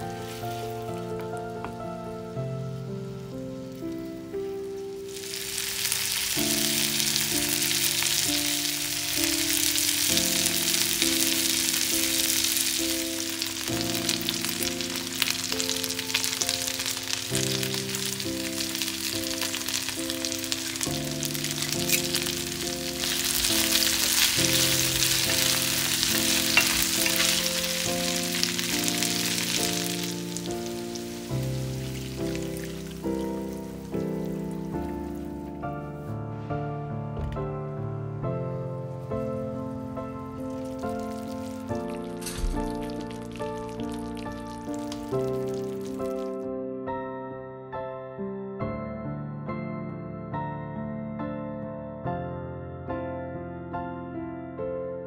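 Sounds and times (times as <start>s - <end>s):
chicken sizzling in frying pan: 0.0s - 1.8s, 2.8s - 35.3s, 40.2s - 46.4s
background music of held notes: 0.0s - 46.5s.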